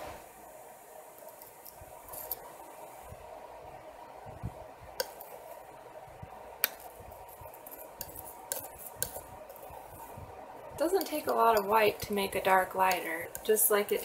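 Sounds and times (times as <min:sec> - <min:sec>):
faint steady hum: 0:00.0 - 0:14.0
mixing tool tapping palette: 0:05.0 - 0:05.6, 0:06.6 - 0:14.0.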